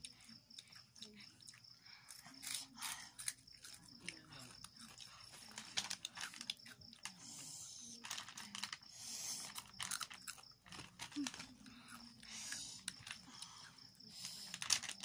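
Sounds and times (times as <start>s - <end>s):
chips being chewed: 0.0s - 15.0s.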